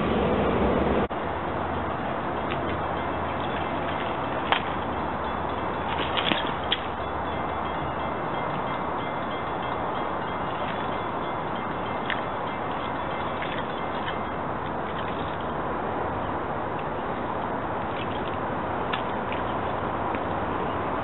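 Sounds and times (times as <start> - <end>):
high metallic pings: 4.8 - 14.4.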